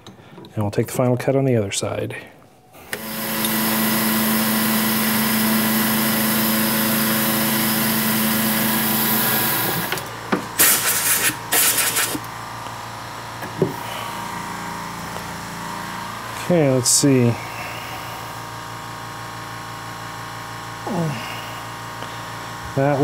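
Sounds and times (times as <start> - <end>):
milling machine humming: 2.8 - 23.0
sharp noisy bursts: 2.9 - 13.2
hiss of metal cutting: 10.6 - 12.2.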